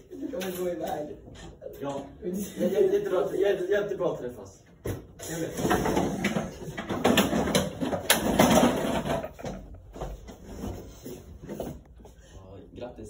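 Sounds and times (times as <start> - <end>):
rustling and bumping: 4.9 - 11.9.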